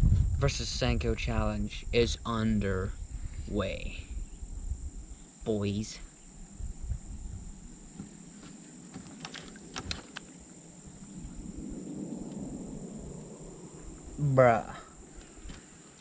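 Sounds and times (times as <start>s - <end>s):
crickets chirring: 0.0s - 16.0s
sharp clicks: 9.2s - 10.3s.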